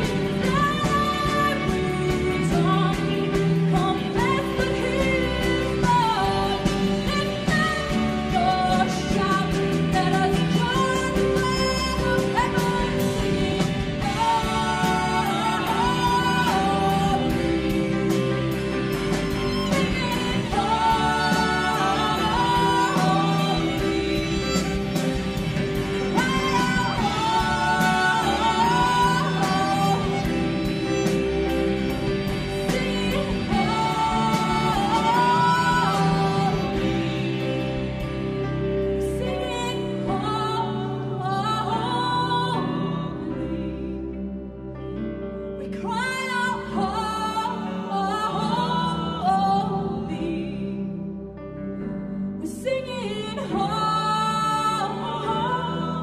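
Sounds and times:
woman singing: 0:00.0 - 0:44.6, 0:45.4 - 0:51.4, 0:52.4 - 0:56.0
electric guitar: 0:00.0 - 0:56.0
keyboard: 0:00.0 - 0:56.0
violin: 0:00.0 - 0:56.0.

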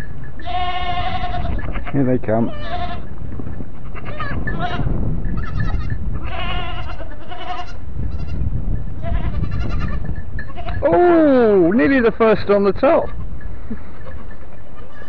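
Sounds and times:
goats bleating: 0:00.4 - 0:03.1, 0:03.8 - 0:08.4, 0:09.0 - 0:11.0, 0:13.0 - 0:15.0.

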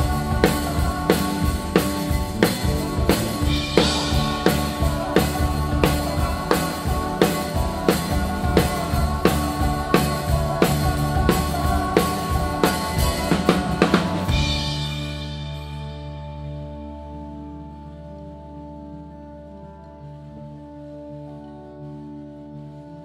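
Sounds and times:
drum kit played with sticks: 0:00.0 - 0:16.4.

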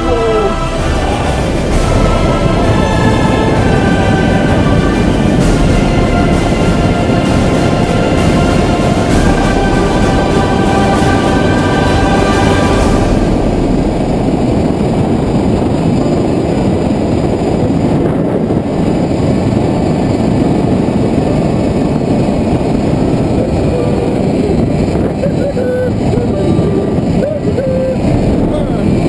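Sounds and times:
wind buffeting microphone: 0:00.0 - 0:29.0.

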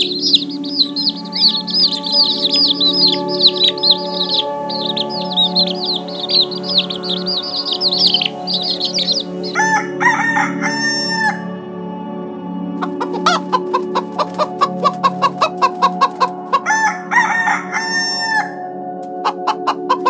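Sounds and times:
quail chicks peeping: 0:00.0 - 0:09.9, 0:12.8 - 0:16.8, 0:19.2 - 0:20.0
rooster crowing: 0:00.0 - 0:11.5, 0:16.6 - 0:18.6.

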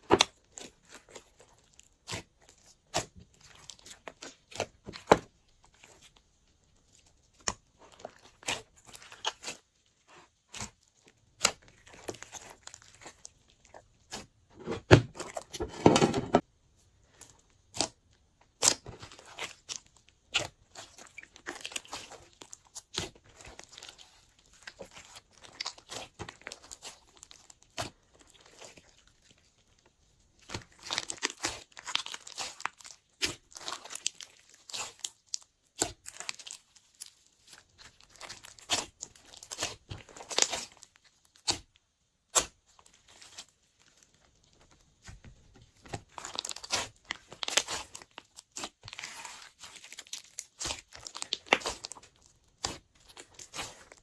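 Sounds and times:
slime squishing by hand: 0:00.0 - 0:54.0.

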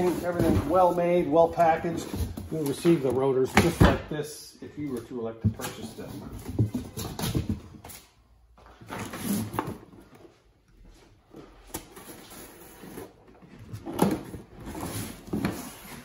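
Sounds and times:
cardboard scraping and rustling: 0:11.9 - 0:16.0.

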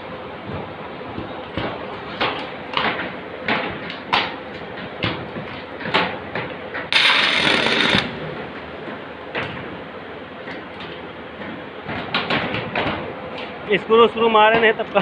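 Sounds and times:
arc welding hissing crackle: 0:06.9 - 0:08.2.

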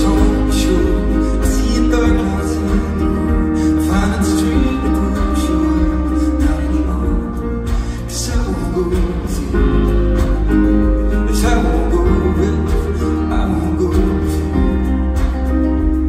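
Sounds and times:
live band playing pop song: 0:00.0 - 0:16.0
person singing: 0:00.0 - 0:16.0.

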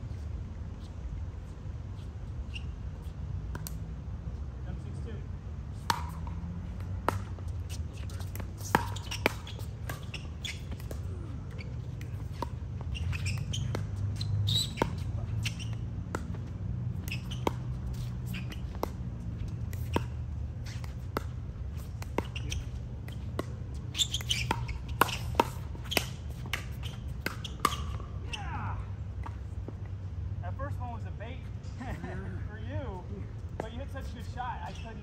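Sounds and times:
steady low hum: 0:00.0 - 0:35.0
sneakers squeaking on court: 0:00.8 - 0:03.2, 0:05.8 - 0:28.5, 0:33.6 - 0:35.0.

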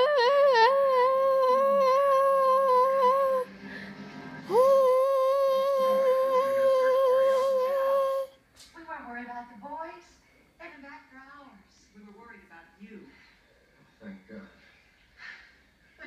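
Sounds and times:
child humming: 0:00.0 - 0:03.5, 0:04.5 - 0:08.4.

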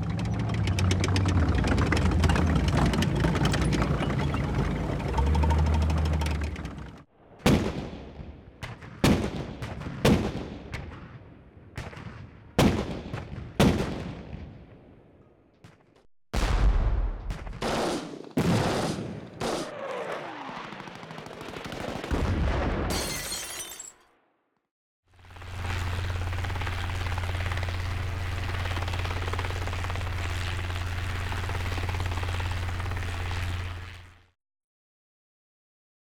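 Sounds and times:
low rumble: 0:00.0 - 0:07.0
echoing gunshots: 0:07.4 - 0:11.0, 0:11.8 - 0:14.6, 0:16.4 - 0:19.8.

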